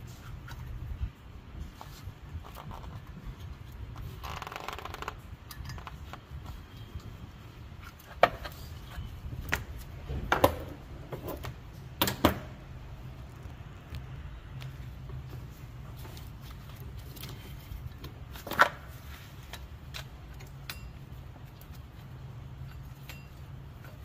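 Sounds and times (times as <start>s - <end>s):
metal tool clicks and knocks: 19.9s - 21.0s.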